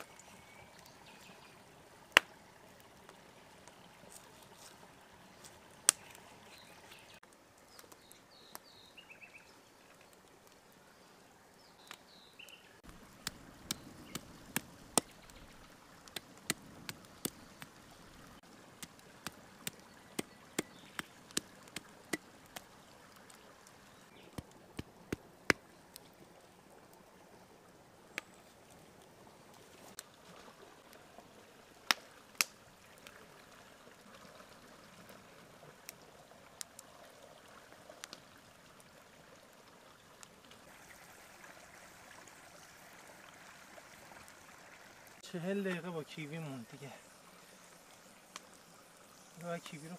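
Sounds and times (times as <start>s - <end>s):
cleaver chopping meat and bone: 18.8s - 22.3s.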